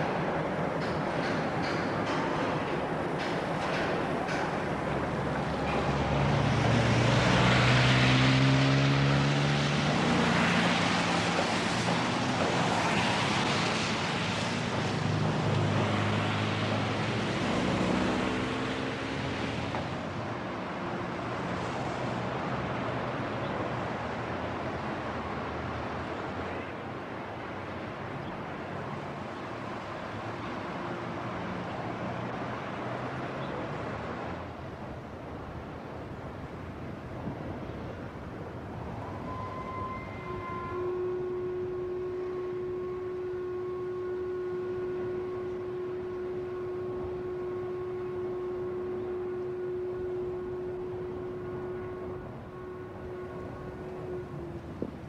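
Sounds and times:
road traffic noise: 0.0 - 55.0
car engines accelerating: 5.0 - 24.7.

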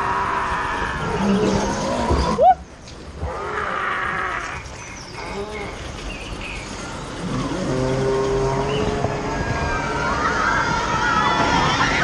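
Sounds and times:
roller coaster train humming on track: 0.0 - 12.0.

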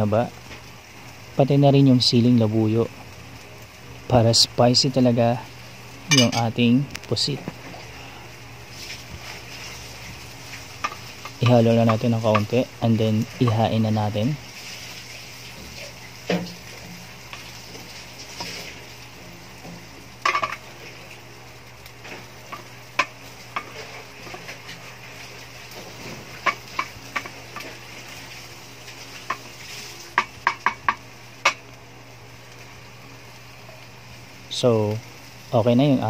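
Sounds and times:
stir-fry sizzling in a wok: 0.0 - 36.0
utensil clinking against wok: 6.1 - 6.5.

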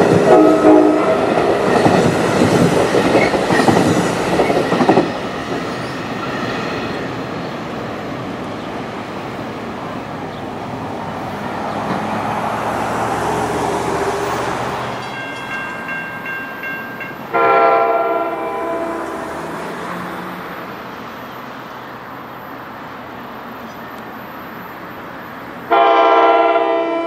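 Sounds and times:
train horn chord: 0.2 - 1.7, 17.3 - 19.6, 25.7 - 27.0.

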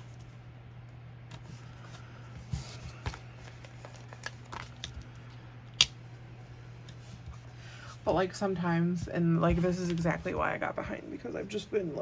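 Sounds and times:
low electrical hum: 0.0 - 12.0
paper rustling: 1.3 - 5.1.

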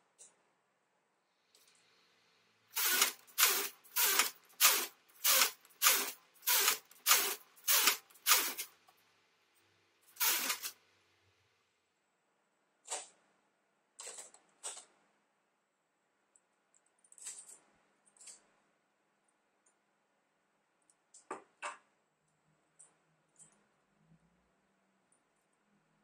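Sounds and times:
knitting machine carriage sliding: 2.8 - 8.7, 10.1 - 10.8.

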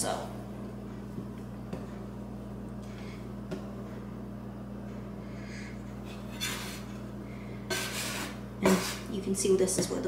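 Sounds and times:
low room hum: 0.0 - 10.0.

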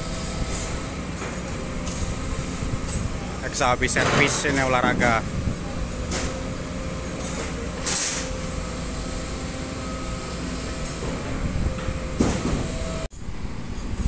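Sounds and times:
diesel construction machinery rumbling: 0.0 - 14.0
metal clank: 3.9 - 5.0.

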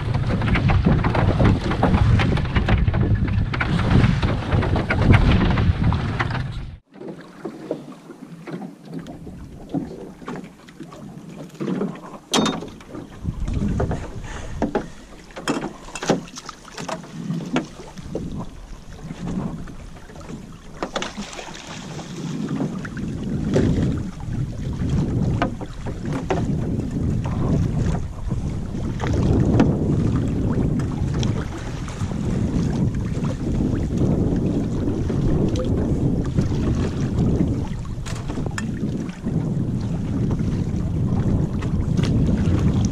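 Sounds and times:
wind buffeting microphone: 0.0 - 6.9, 12.4 - 42.9
water lapping against boat hull: 0.0 - 42.9
sharp knocks: 12.3 - 12.8.

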